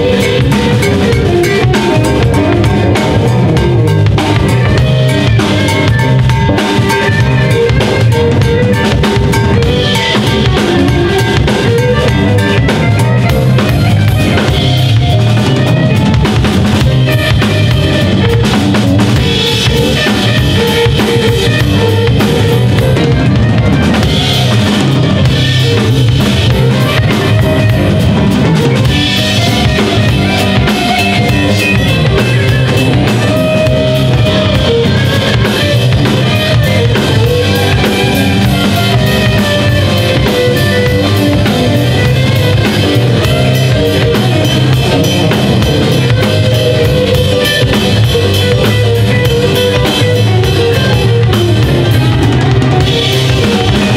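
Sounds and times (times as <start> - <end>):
drum kit: 0.0 - 53.9
live band playing instrumental: 0.0 - 53.9.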